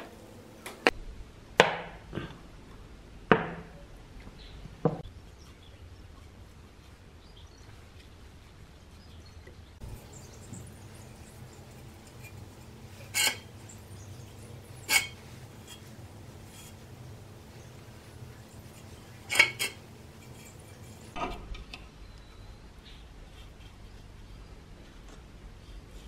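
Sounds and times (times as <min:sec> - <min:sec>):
paintbrush scratching on metal: 0:09.8 - 0:21.2.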